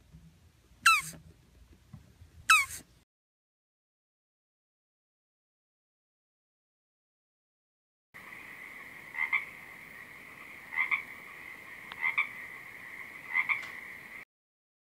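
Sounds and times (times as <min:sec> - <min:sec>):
frog croaking: 0:00.9 - 0:01.2, 0:02.5 - 0:02.8, 0:08.2 - 0:14.2.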